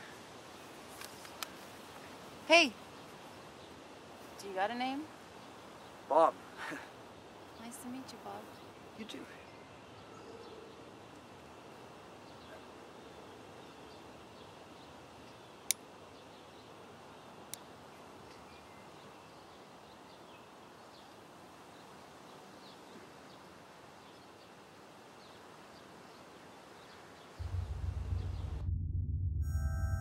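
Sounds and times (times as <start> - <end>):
steady background hiss: 0.0 - 27.5
loud low rumble: 27.4 - 30.0.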